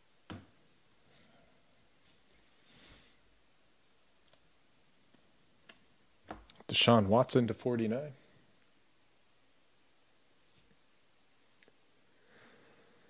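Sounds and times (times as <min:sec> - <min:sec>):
faint soft rustle: 0:10.3 - 0:11.7.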